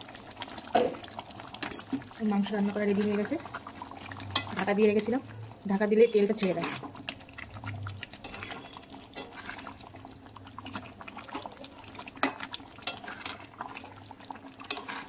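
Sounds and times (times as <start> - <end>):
metal utensil scraping a pan: 6.3 - 7.0, 8.1 - 9.7, 12.2 - 13.4, 14.6 - 15.0.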